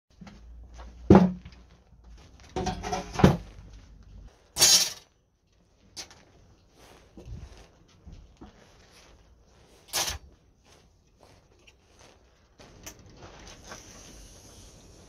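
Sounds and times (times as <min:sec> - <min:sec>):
metal ruler scraping sheet: 0:02.6 - 0:03.4, 0:04.6 - 0:05.0, 0:09.8 - 0:10.3.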